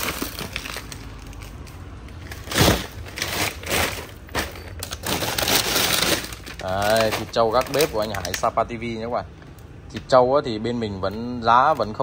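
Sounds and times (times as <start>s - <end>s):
loud plastic crunch: 0.0s - 9.0s
plastic bags rustling and crinkling: 0.0s - 9.2s, 11.1s - 12.0s.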